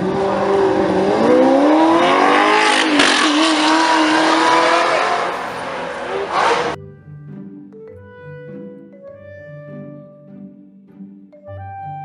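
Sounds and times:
car engine revving: 0.0 - 6.8.

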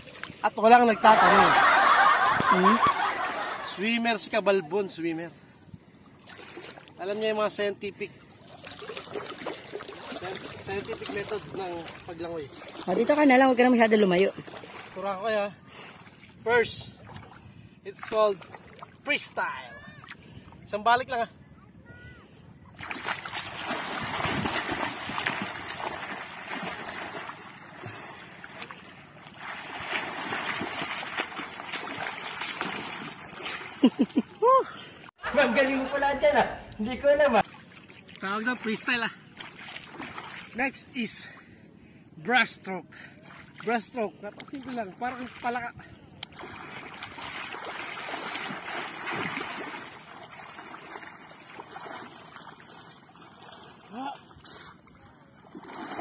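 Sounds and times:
swimmer's arms splashing water: 22.8 - 34.1, 46.3 - 52.9.

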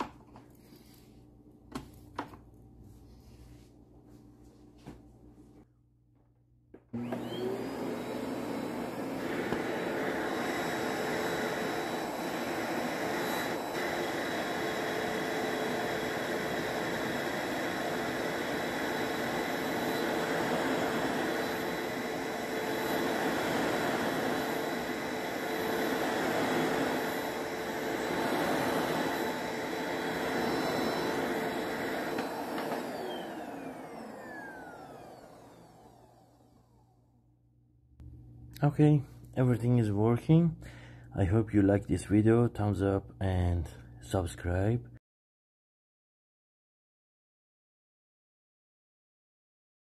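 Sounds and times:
carpet cleaner motor whining: 6.7 - 37.2.

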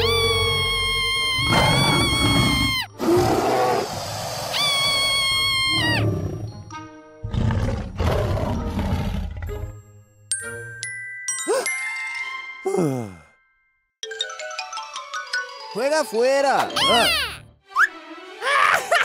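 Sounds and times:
girl shrieking: 0.0 - 2.9, 4.6 - 6.0, 16.8 - 17.4, 18.4 - 19.0
dinosaur roaring and growling: 1.4 - 5.0, 7.2 - 9.6
background music: 5.4 - 19.0.

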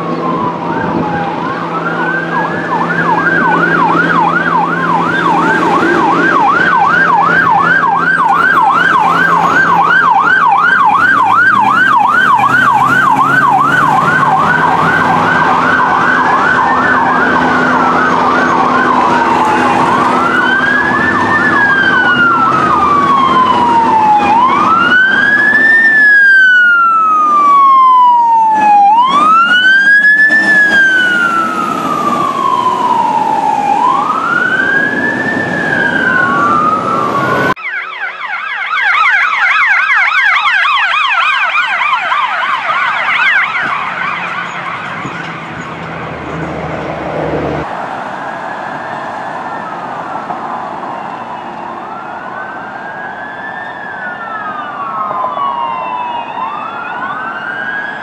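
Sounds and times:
siren warbling fast: 0.0 - 45.3
siren wailing: 0.0 - 58.0.

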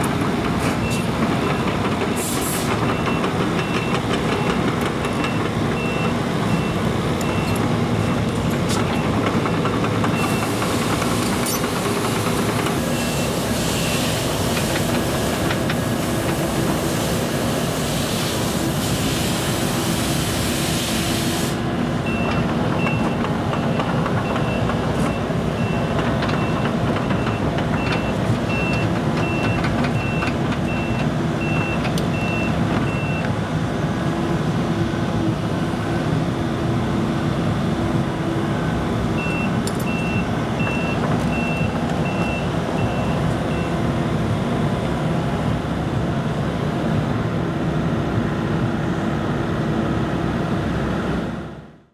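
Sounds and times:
excavator diesel engine running: 0.0 - 51.6
backup alarm beeping: 2.9 - 8.3
hiss: 13.3 - 21.6.

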